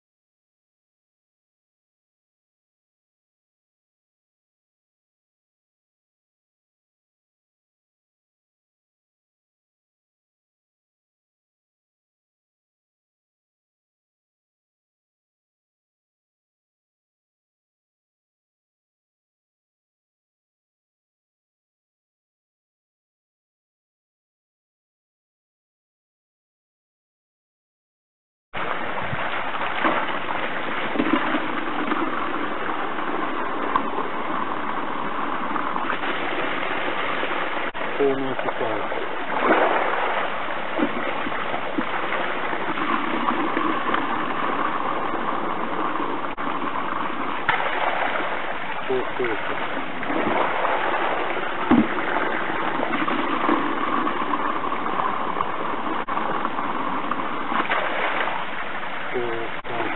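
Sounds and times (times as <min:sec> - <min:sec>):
water splashing into bucket: 0:28.6 - 0:33.0, 0:35.8 - 0:45.0, 0:46.3 - 0:55.6, 0:57.4 - 0:59.9
water gushing from pipe: 0:28.6 - 0:59.9.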